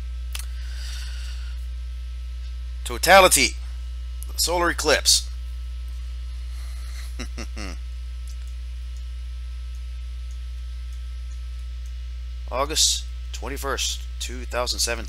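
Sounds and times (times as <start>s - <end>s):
electrical mains hum: 0.0s - 15.0s
murmured word: 7.2s - 7.8s.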